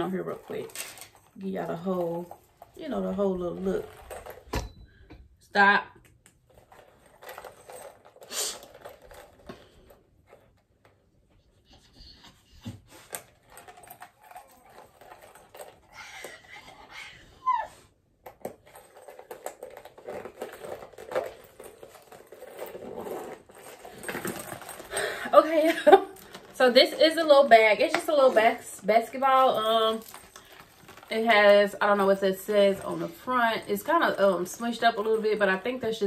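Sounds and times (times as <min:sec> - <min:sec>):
metal chain clinking: 0:00.0 - 0:05.8, 0:06.4 - 0:10.6, 0:12.8 - 0:17.0, 0:18.3 - 0:36.0
soft handling noises: 0:18.2 - 0:35.8.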